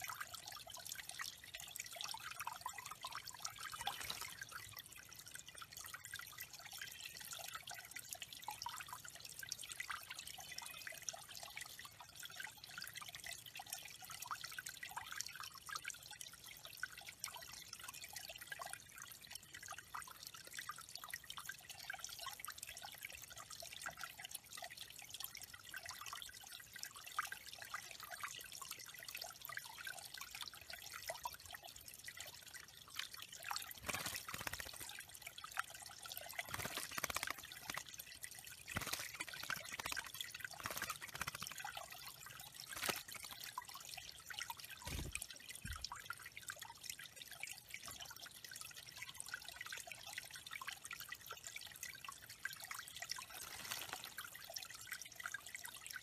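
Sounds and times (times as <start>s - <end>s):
small waterfall trickling: 0.0s - 56.0s
water splashes: 32.7s - 44.0s, 44.6s - 46.0s, 53.1s - 54.6s.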